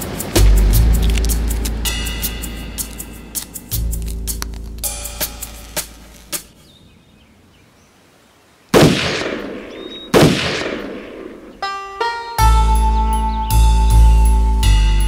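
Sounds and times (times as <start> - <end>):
music with held notes and drums: 0.0 - 6.5, 11.6 - 15.0
loud bangs with long echo: 8.8 - 11.6.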